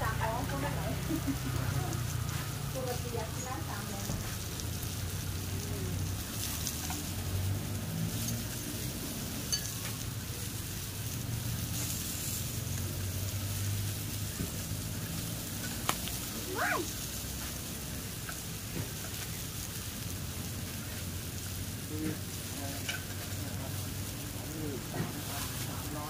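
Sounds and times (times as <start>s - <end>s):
beef sizzling on grill-pan: 0.0s - 26.0s
broth simmering: 0.0s - 26.0s
chopsticks clicking against pan: 6.4s - 7.3s, 9.4s - 10.2s, 15.3s - 16.3s, 18.1s - 19.8s, 22.8s - 23.4s.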